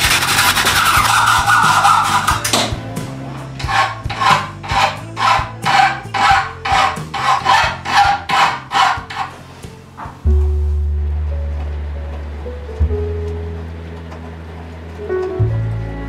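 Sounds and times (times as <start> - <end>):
file rasping on metal rod: 0.0 - 2.8, 3.6 - 9.5.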